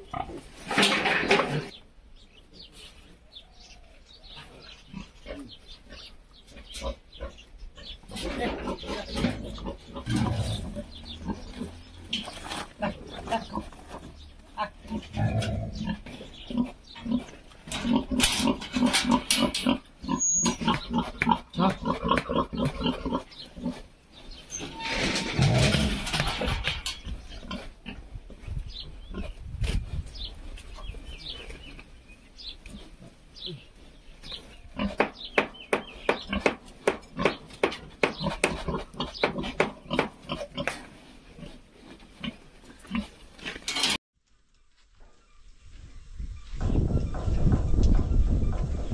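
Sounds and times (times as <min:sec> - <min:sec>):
pigs grunting: 0:04.3 - 0:23.9, 0:24.7 - 0:28.2, 0:36.2 - 0:43.7.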